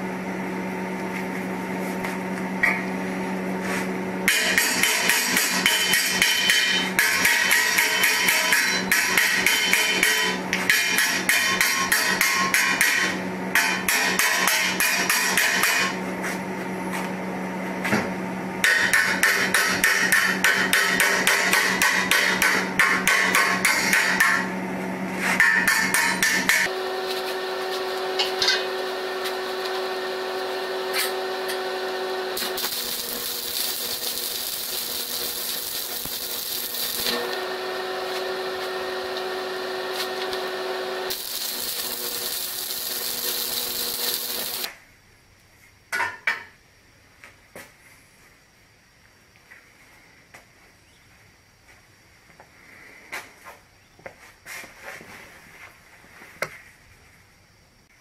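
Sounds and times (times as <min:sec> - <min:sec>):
welding arc crackling hiss: 0:26.6 - 0:44.8
chipping hammer tapping metal: 0:32.4 - 0:37.3, 0:41.1 - 0:44.7.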